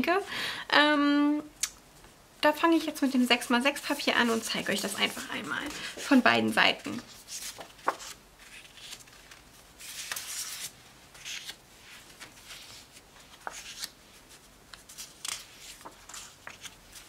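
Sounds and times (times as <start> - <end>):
paper rustling and sliding: 7.0 - 17.0.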